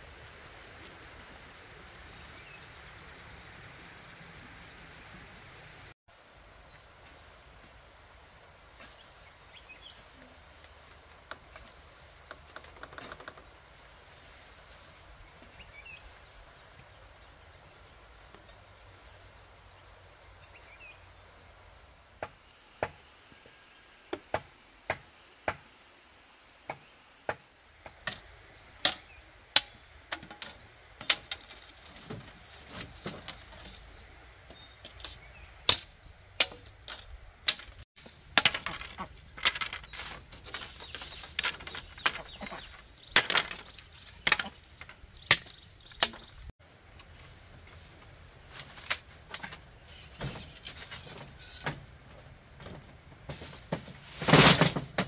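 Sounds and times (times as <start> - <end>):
bamboo pieces clattering: 10.5 - 13.6, 28.0 - 34.1, 34.8 - 55.0.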